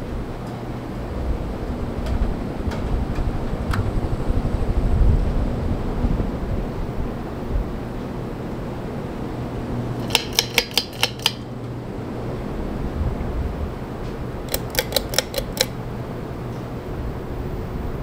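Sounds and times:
ceiling fans humming: 0.0s - 18.0s
quick clicks: 10.0s - 11.4s, 14.5s - 15.8s.

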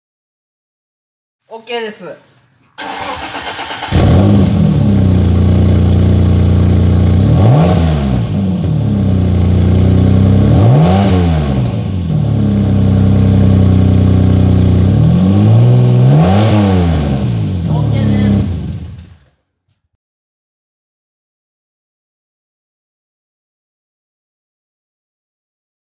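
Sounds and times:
car engine idling: 2.8s - 7.6s, 8.2s - 10.8s, 11.6s - 16.0s, 16.9s - 19.2s
engine revving: 2.8s - 19.2s.

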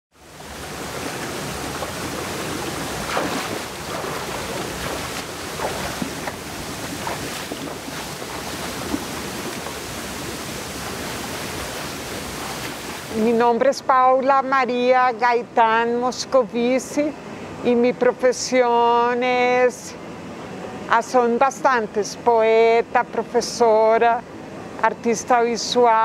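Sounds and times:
stream flowing over rocks: 0.1s - 13.1s
water gurgles and splashes: 0.2s - 13.1s.

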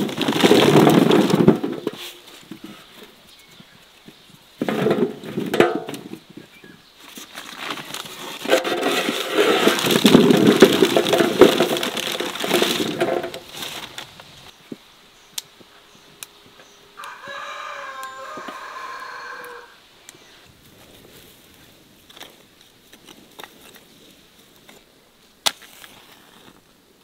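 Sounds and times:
fruit rustling in metal tub: 0.0s - 3.1s, 4.6s - 6.5s, 7.1s - 14.5s
rooster crowing: 16.8s - 19.8s.

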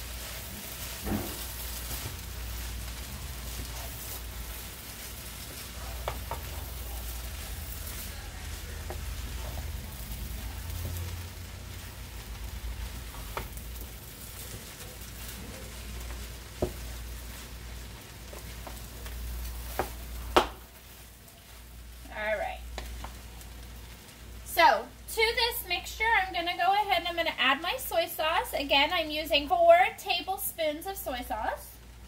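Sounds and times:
wooden spoon stirring: 0.0s - 24.3s
rice frying in metal pan: 0.0s - 32.0s.

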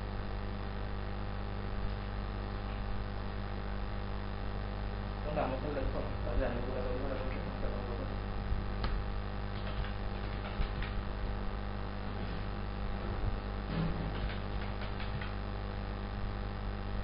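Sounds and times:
electrical mains hum: 0.0s - 17.0s
keyboard and mouse clicks: 8.8s - 11.0s, 14.0s - 15.4s.

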